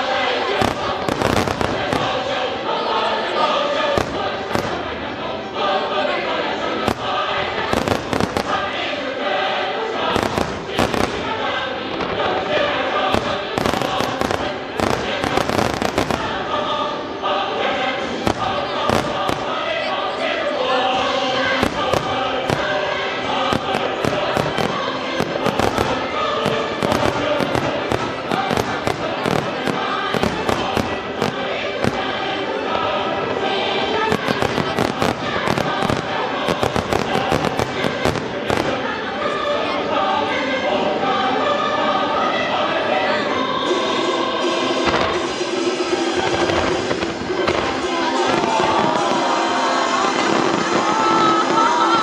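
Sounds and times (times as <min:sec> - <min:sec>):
choral music: 0:00.0 - 0:52.0
fireworks bangs and crackle: 0:00.4 - 0:02.5, 0:03.9 - 0:05.2, 0:06.8 - 0:09.0, 0:10.1 - 0:16.7, 0:18.0 - 0:19.9, 0:21.1 - 0:32.5, 0:33.2 - 0:38.9, 0:44.8 - 0:52.0.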